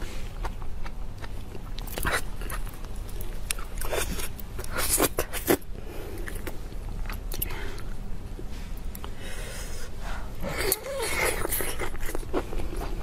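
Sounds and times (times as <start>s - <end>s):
wet chewing: 0.3s - 8.0s.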